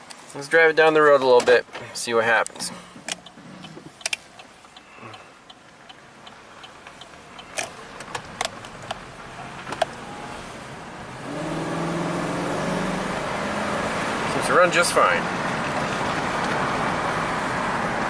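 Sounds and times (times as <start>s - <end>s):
faint engine and road noise: 0.0s - 18.0s
light even ticking: 2.4s - 9.2s.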